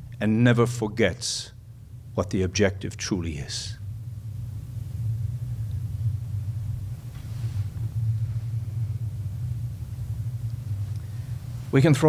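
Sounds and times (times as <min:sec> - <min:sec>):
microphone background hum: 0:00.0 - 0:12.0
faint soft rustle: 0:06.5 - 0:09.2.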